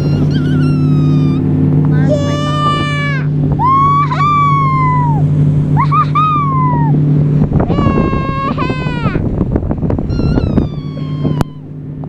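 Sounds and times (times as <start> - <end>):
dog whining: 0.0 - 1.5, 10.1 - 11.7
boat motor humming: 0.0 - 12.0.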